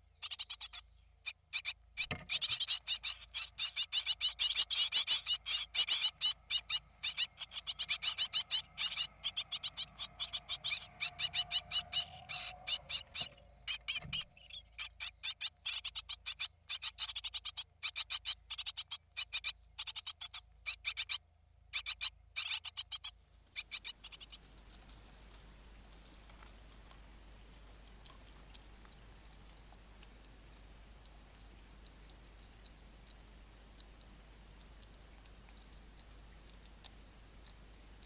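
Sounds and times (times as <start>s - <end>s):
nestlings cheeping: 1.6s - 16.4s
faint hiss: 23.4s - 38.0s.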